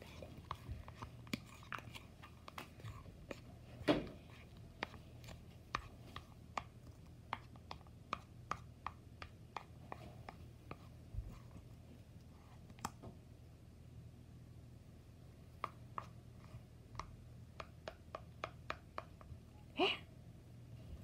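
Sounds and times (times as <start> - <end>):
sticky squelches from stirring: 0.0 - 8.6.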